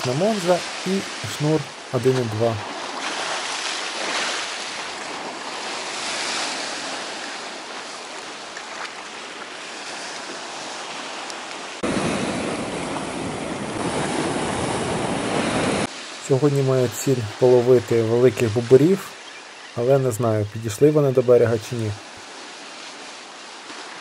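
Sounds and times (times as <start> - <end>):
wind on microphone: 11.8 - 15.9.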